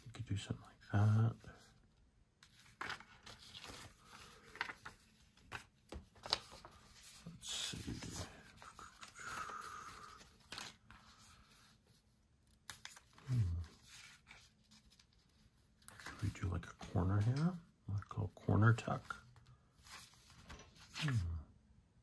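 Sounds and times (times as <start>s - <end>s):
paper rustling: 2.4s - 17.6s, 18.8s - 21.3s.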